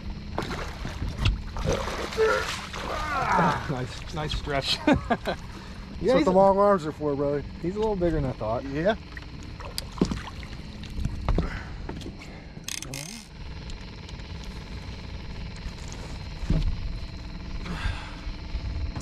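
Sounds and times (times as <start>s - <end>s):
steady low hum: 0.0s - 19.0s
knocks and scuffs on boat deck: 11.0s - 12.2s, 16.4s - 16.9s.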